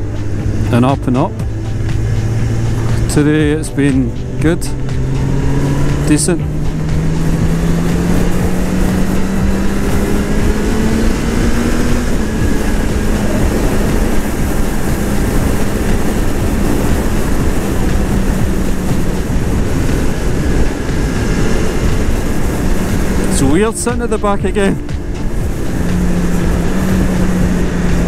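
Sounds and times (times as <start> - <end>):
wind rumble on microphone: 0.0 - 28.0.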